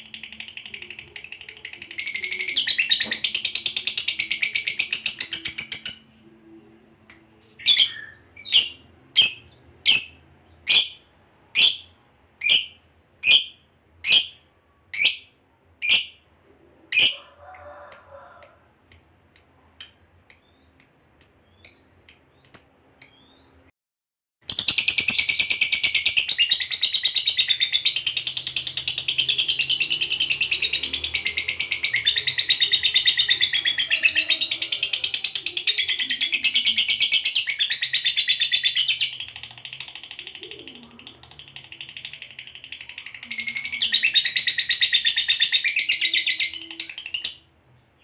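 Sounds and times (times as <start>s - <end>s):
faint bird chirps: 0.0s - 23.7s
lovebird chattering trill: 17.9s - 23.3s
loud high bird calls: 25.8s - 39.4s.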